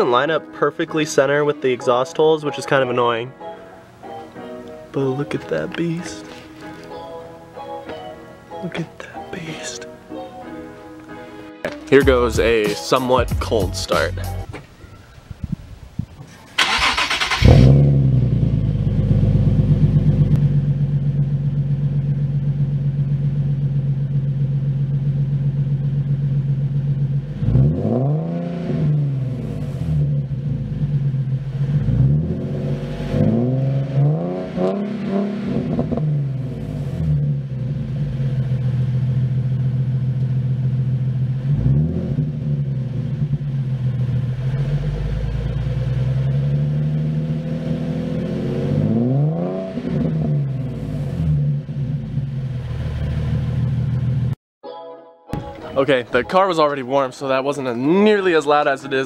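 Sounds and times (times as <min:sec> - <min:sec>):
loud car engine idling and revving: 0:17.1 - 0:54.4.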